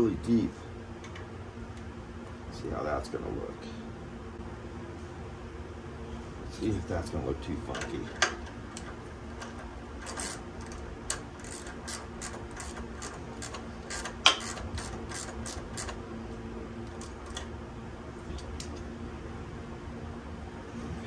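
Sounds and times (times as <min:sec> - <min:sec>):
ratchet wrench clicking: 0:09.4 - 0:16.0.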